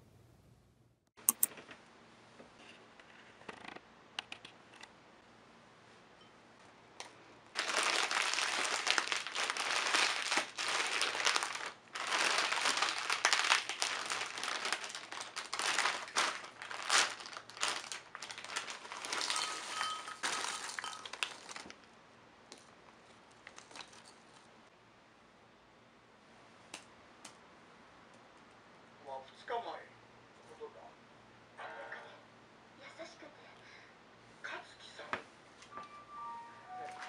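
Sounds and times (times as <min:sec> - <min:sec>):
plastic snack packet crinkling: 0:07.6 - 0:21.9, 0:23.3 - 0:24.2.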